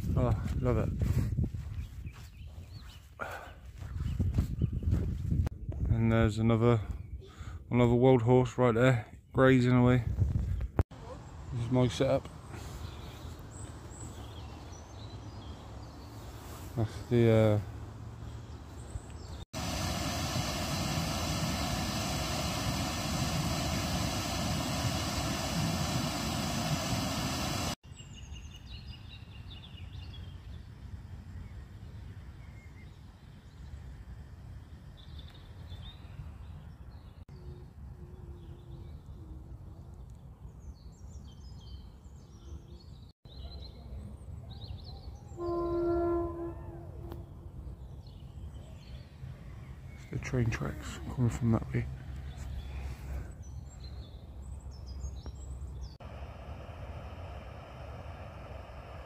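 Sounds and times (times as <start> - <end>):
loud rushing rumble with hum: 19.6 - 27.8, 56.0 - 59.0.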